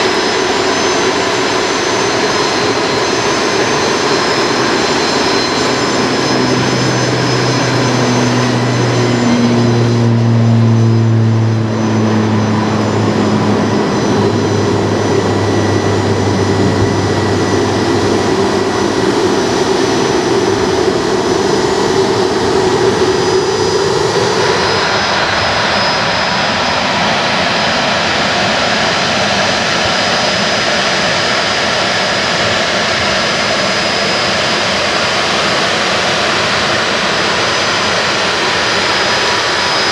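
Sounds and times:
jet engines whining: 0:00.0 - 0:39.9.

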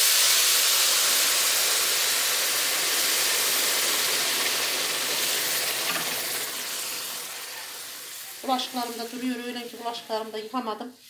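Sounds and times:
water hissing in a hot pot: 0:00.0 - 0:10.6.

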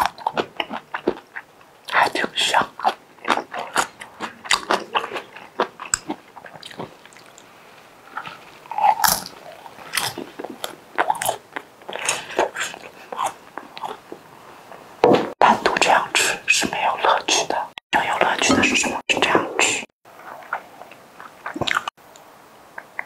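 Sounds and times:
close-miked chewing and biting: 0:00.0 - 0:07.5, 0:08.1 - 0:14.2, 0:20.1 - 0:21.9
mouth clicks and smacks: 0:00.0 - 0:07.5, 0:15.4 - 0:21.9, 0:22.7 - 0:23.0.

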